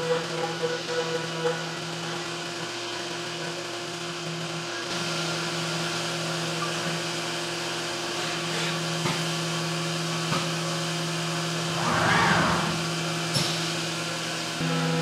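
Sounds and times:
machine hum: 11.4s - 15.0s.

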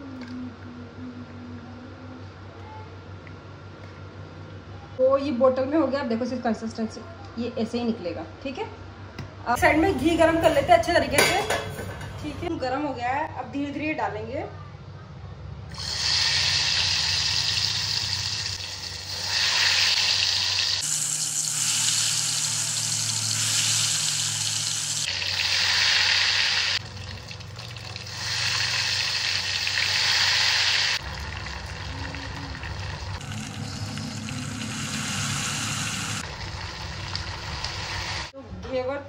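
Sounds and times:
batter sizzling in hot ghee: 15.7s - 38.3s.

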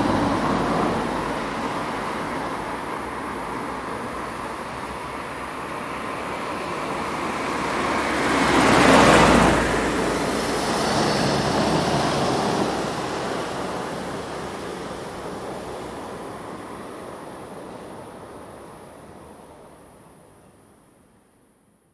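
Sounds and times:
passing traffic: 0.0s - 21.4s
vehicle passing close: 5.9s - 16.7s.

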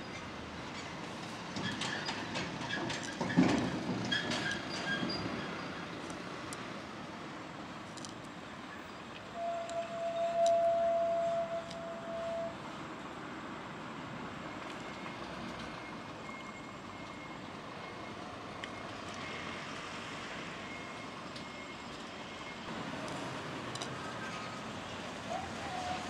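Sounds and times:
distant traffic hum: 0.0s - 26.0s.

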